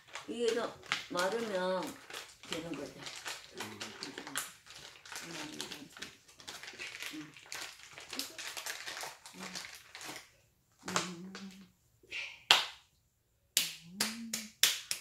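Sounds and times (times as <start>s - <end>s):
sharp smack of hands: 12.5s - 12.8s, 13.6s - 15.0s.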